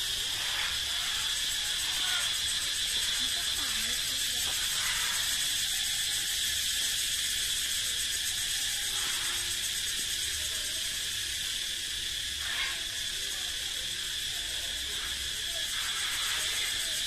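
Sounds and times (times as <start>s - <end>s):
cicadas buzzing: 0.0s - 17.0s.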